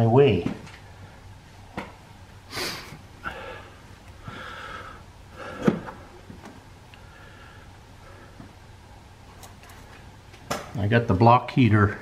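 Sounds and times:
man breathing hard and grunting: 2.5s - 6.2s.

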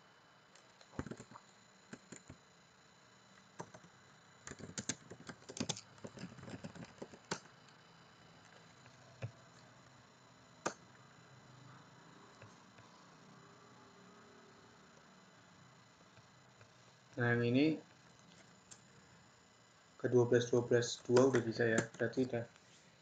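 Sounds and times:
computer keyboard typing: 0.8s - 2.4s, 3.4s - 7.5s, 10.6s - 10.8s, 21.0s - 22.4s.

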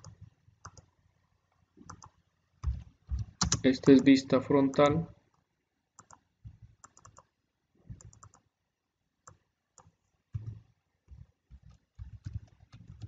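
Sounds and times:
keyboard keys tapping: 1.8s - 4.1s, 9.3s - 13.0s.

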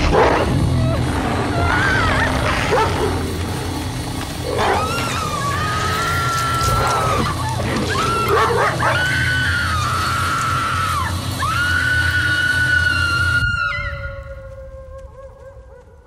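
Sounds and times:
steady low drone: 0.0s - 16.0s
high wailing screech-like tones: 4.4s - 14.4s.

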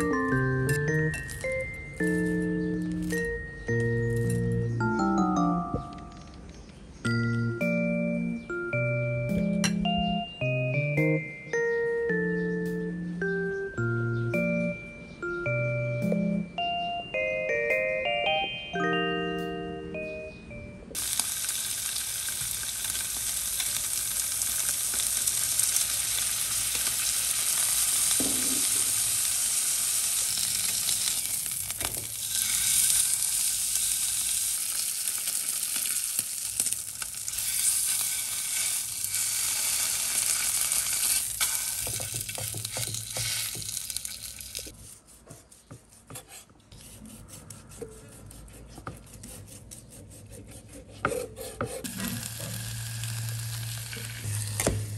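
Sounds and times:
pork sizzling in fat: 21.0s - 44.8s, 51.6s - 54.9s
tongs scraping: 30.2s - 44.8s.

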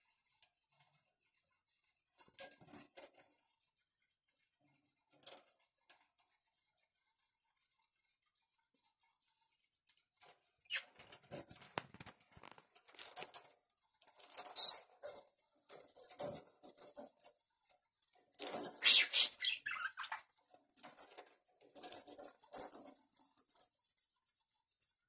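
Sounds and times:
small bell jingling: 18.3s - 24.0s.

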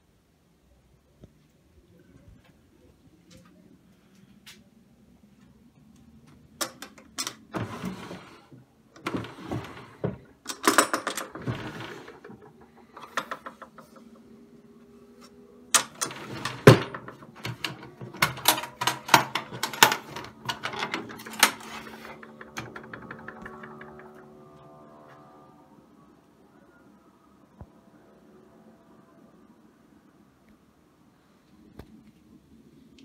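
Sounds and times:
wooden drawers sliding: 7.2s - 14.1s, 15.8s - 24.1s.

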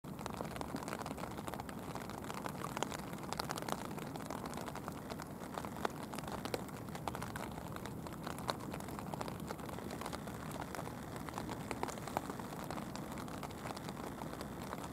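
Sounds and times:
raindrop ticks: 0.0s - 14.9s
rain hiss: 0.1s - 14.9s.

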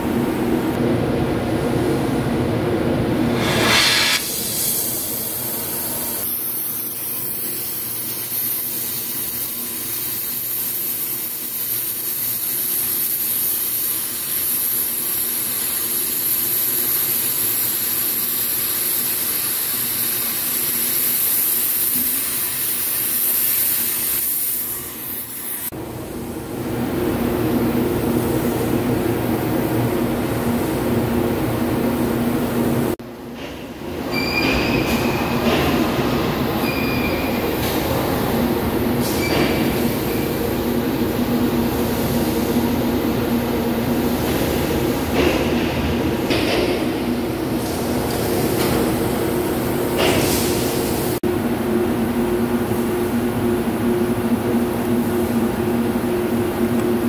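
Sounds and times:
cutting torch hissing: 3.3s - 25.7s.

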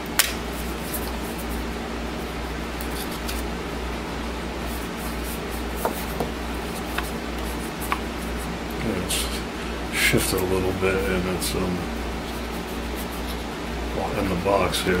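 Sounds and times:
low hum and hiss: 0.0s - 15.0s.

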